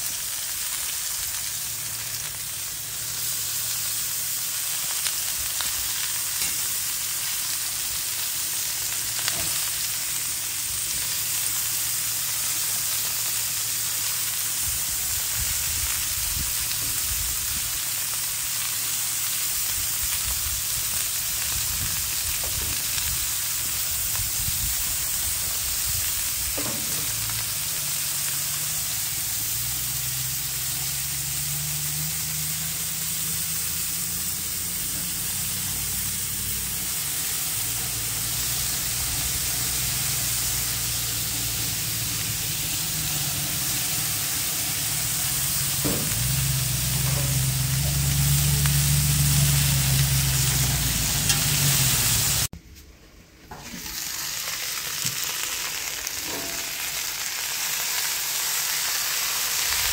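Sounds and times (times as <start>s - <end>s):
food sizzling on a grill: 0.0s - 52.5s, 53.5s - 59.9s
low rumble: 34.3s - 52.5s.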